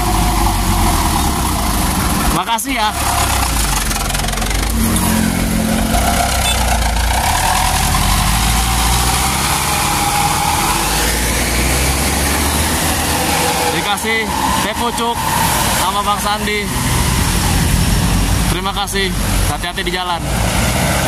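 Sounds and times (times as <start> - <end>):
diesel truck engine revving: 0.0 - 21.0.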